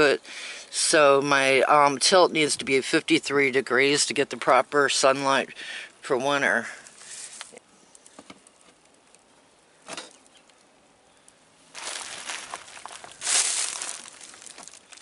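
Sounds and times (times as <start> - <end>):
plastic sheeting crinkling: 11.7 - 15.0.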